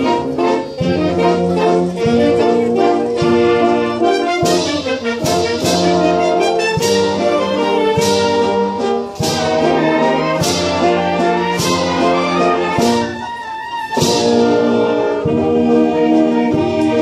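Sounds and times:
brass band playing: 0.0 - 17.0
percussion strikes: 0.0 - 17.0.

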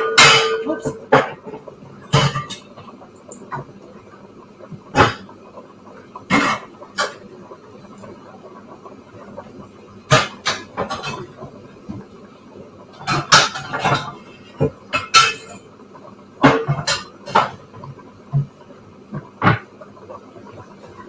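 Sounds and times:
pots and pans clattering: 0.0 - 3.7, 4.9 - 5.3, 6.2 - 7.3, 10.1 - 12.0, 12.9 - 15.8, 16.4 - 19.7.

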